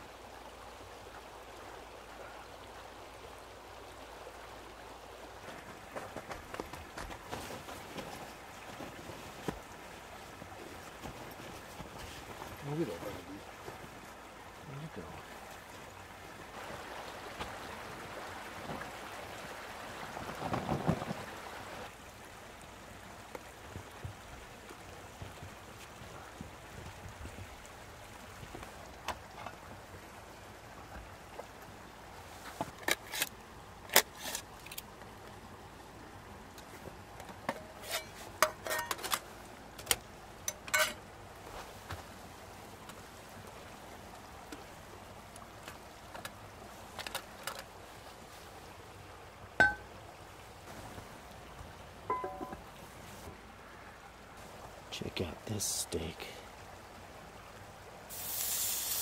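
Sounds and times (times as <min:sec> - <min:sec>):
metallic clinks of cookware: 0:40.5 - 0:41.0, 0:52.1 - 0:52.6
steak sizzling in a pan: 0:58.1 - 0:59.0.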